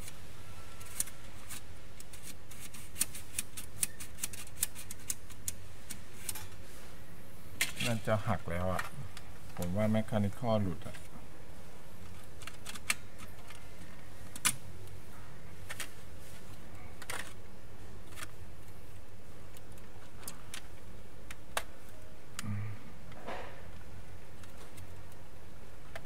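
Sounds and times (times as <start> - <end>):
steady low hum: 0.0 - 26.0
plastic parts clicking: 0.8 - 6.6, 12.0 - 15.0, 17.0 - 17.4.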